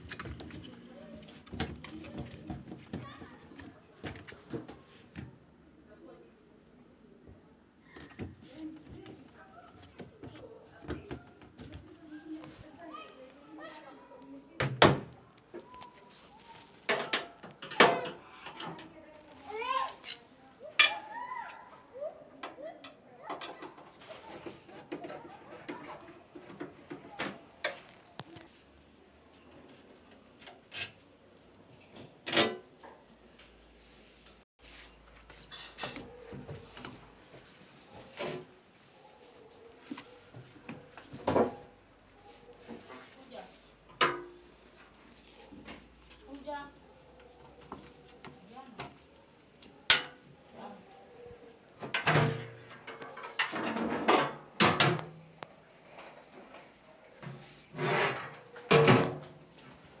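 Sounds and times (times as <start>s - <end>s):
metal panel scraping: 57.7s - 58.4s.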